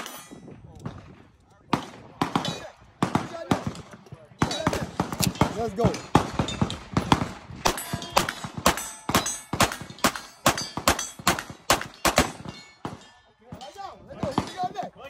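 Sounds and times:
pistol firing rapid shots: 4.4s - 12.5s.

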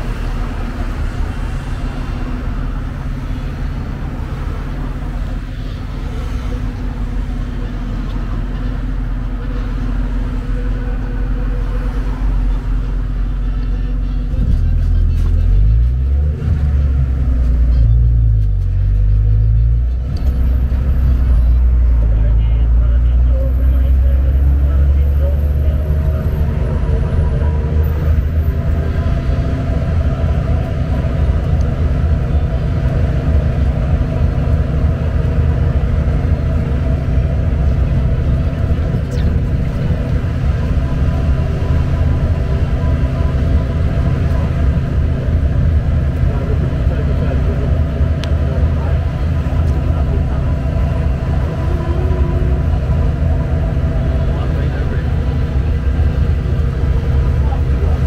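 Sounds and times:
low engine rumble: 0.0s - 58.0s
passing cars: 0.0s - 58.0s
road noise: 0.0s - 58.0s.

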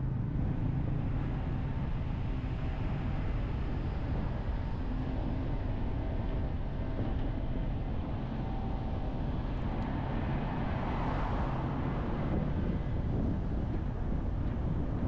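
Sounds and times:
car road and wind noise: 0.0s - 15.0s.

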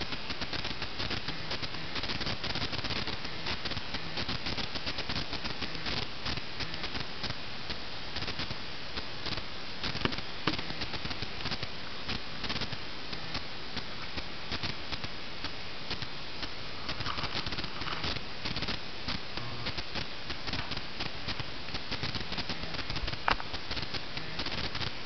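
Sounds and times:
steady hiss: 0.0s - 25.0s
wood shavings rustling and crackling: 16.8s - 18.8s.

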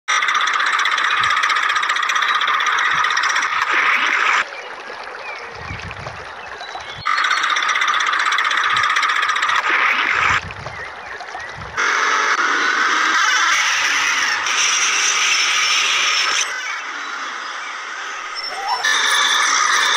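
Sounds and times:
frogs croaking: 0.1s - 19.9s
low rumbling: 4.4s - 7.1s, 8.6s - 12.4s
faint chirps: 15.2s - 19.9s.

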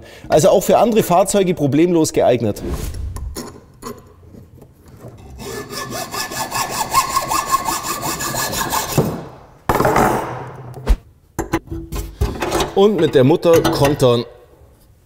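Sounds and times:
hacksaw cutting metal rod: 5.3s - 9.2s.

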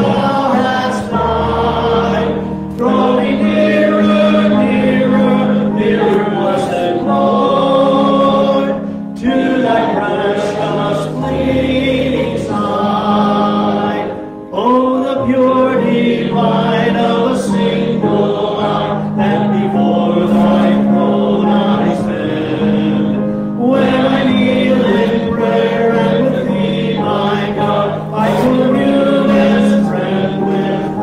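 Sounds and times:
electric keyboard chords: 0.0s - 31.0s
man singing a hymn: 0.0s - 31.0s.

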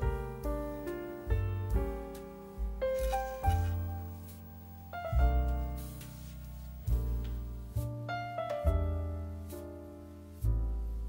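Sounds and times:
gentle piano music: 0.0s - 11.0s.

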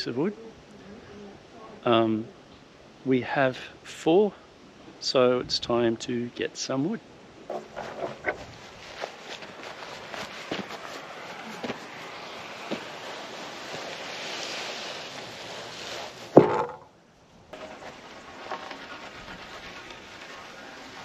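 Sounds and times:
boards rustling over grass: 7.4s - 16.9s, 17.5s - 21.0s
wooden board clunk: 16.4s - 16.9s.

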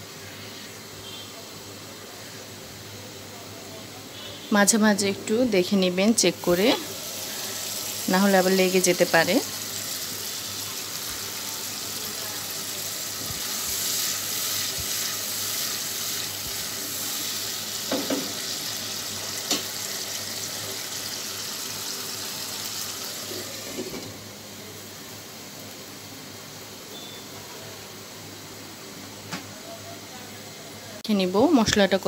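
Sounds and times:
paste sizzling in oil: 4.2s - 24.0s.

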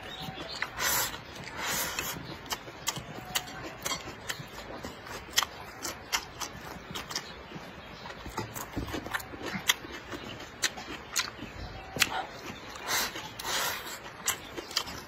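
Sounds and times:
wet chewing: 0.0s - 15.0s
person slurping: 0.6s - 2.3s, 12.7s - 14.1s.

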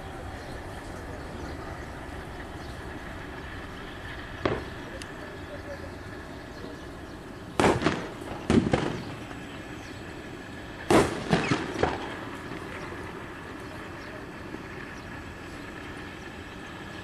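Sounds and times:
steady background rumble: 0.0s - 17.0s
sharp cracks or bangs: 4.4s - 4.8s, 7.6s - 9.3s, 10.9s - 12.8s.

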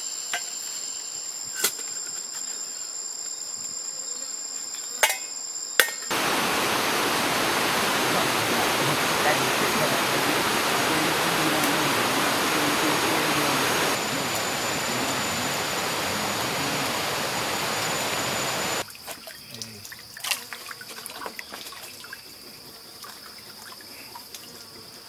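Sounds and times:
loud rushing noise: 6.1s - 18.8s
steady high whine: 6.1s - 18.8s
stream trickling: 6.1s - 24.5s.

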